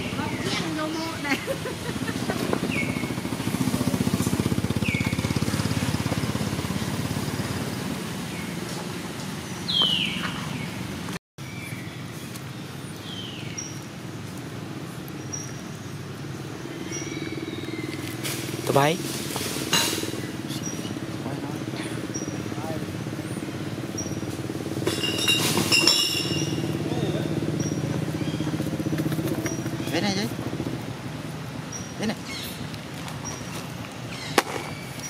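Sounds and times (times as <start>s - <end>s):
small engine running: 0.0s - 8.4s.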